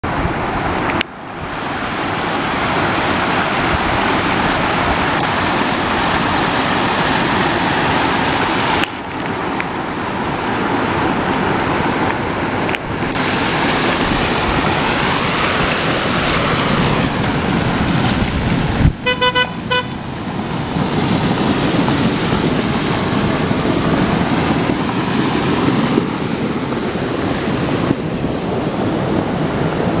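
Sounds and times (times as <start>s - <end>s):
waterfall and stream rushing: 0.0s - 30.0s
vehicle horn short toots: 19.0s - 20.0s.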